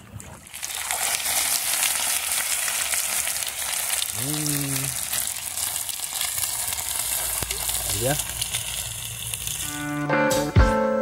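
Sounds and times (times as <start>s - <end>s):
fish frying in hot oil: 0.5s - 10.0s
person humming: 4.1s - 5.0s.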